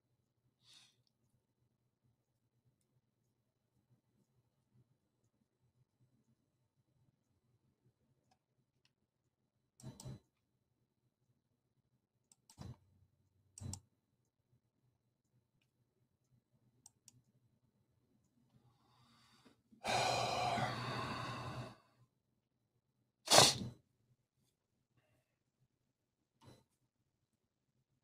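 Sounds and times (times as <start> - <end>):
person breathing: 18.6 - 22.1
person sighing: 19.8 - 21.8.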